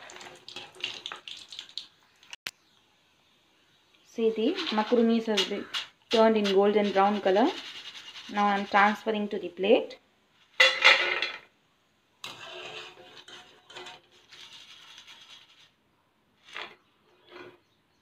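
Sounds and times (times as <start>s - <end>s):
skimmer scraping metal pan: 4.4s - 9.1s, 12.2s - 15.7s.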